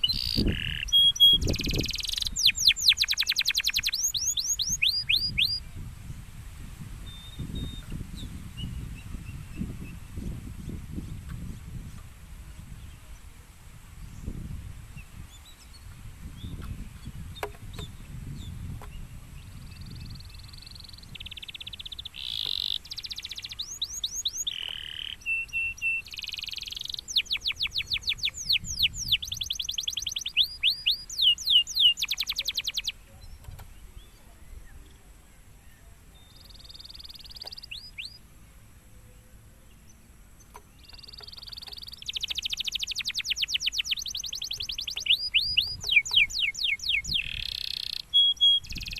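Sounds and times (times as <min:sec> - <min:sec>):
canary singing: 0:00.0 - 0:05.7, 0:15.3 - 0:34.2, 0:36.2 - 0:38.2, 0:39.8 - 0:48.9.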